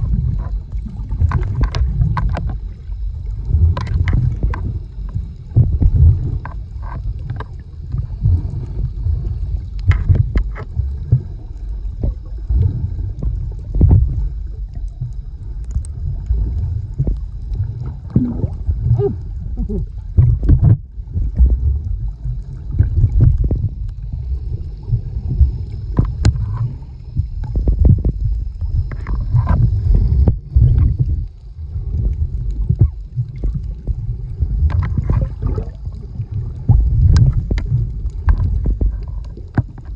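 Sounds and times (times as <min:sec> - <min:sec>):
underwater churning rumble: 0:00.0 - 0:39.9.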